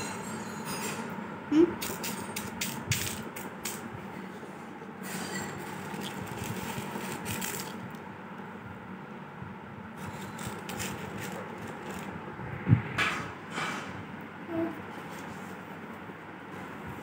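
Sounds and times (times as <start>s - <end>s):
pebbles rustling and scraping: 5.3s - 7.9s.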